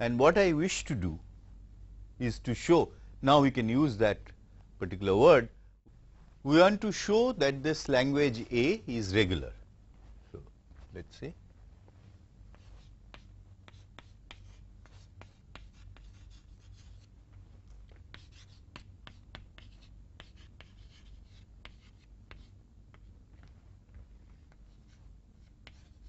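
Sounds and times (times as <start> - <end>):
steady low hum: 0.0 - 26.0
chalk tapping and scratching: 12.5 - 17.1, 17.8 - 26.0.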